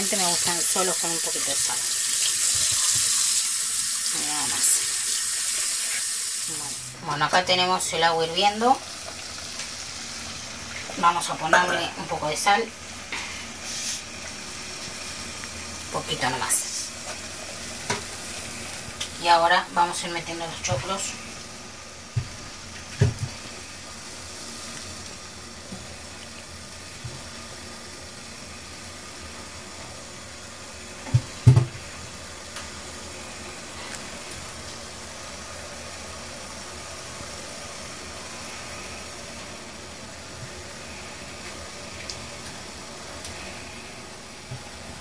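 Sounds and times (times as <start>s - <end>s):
boiling water bubbling: 0.0s - 45.0s
corn knocking in a pot: 22.1s - 23.4s, 31.0s - 31.8s.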